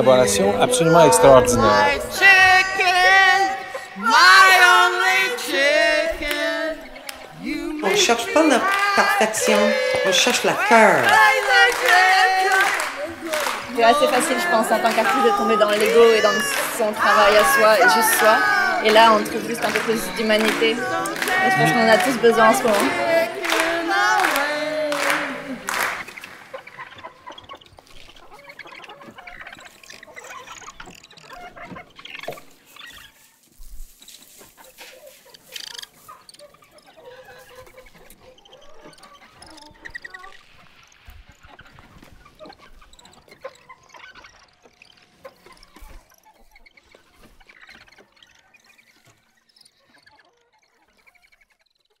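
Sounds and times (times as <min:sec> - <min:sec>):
group of voices singing a note: 0:00.0 - 0:26.3
crowd voices: 0:00.0 - 0:26.6
scattered clapping: 0:01.0 - 0:32.7.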